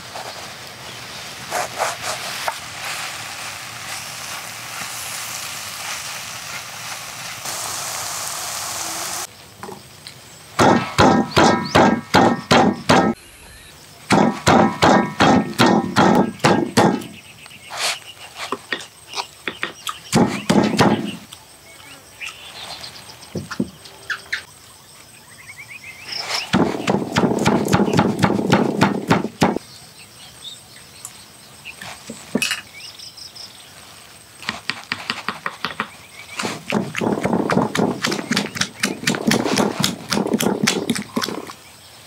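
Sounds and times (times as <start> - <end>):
pestle pounding in stone mortar: 10.6 - 13.2, 14.1 - 17.2, 19.5 - 21.2, 26.5 - 29.6, 34.4 - 41.4.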